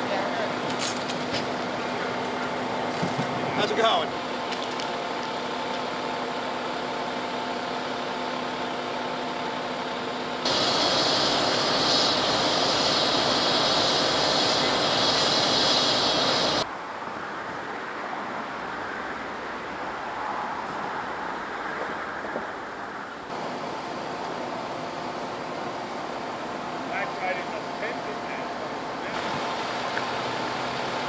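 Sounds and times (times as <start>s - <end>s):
fire engine idling: 0.0s - 16.7s, 23.3s - 31.0s
road ambience: 0.0s - 31.0s
loud hissing whoosh: 10.4s - 16.7s.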